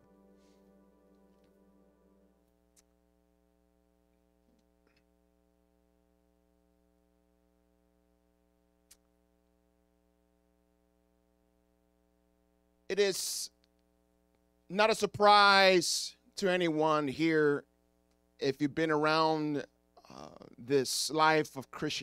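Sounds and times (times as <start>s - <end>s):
soft keyboard chord: 0.0s - 2.8s
faint steady hum: 0.0s - 22.0s.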